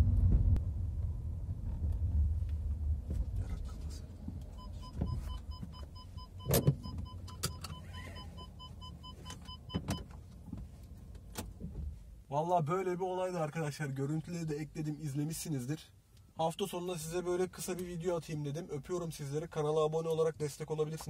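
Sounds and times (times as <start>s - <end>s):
low rumble: 0.0s - 7.2s.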